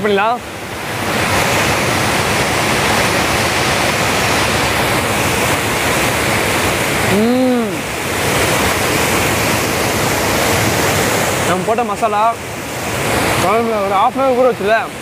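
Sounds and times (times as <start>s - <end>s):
water rushing over a weir: 0.0s - 15.0s
person humming: 7.1s - 7.9s.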